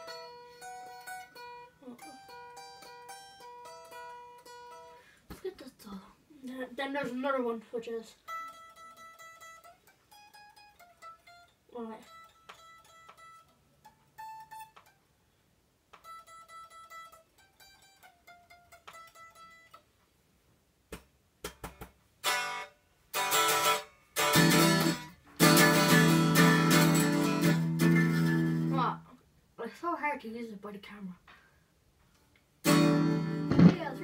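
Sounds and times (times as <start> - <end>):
electric guitar strummed chords: 23.2 - 28.7, 32.7 - 34.0
electric guitar picked notes: 32.7 - 34.0
guitar string taps: 33.4 - 34.0.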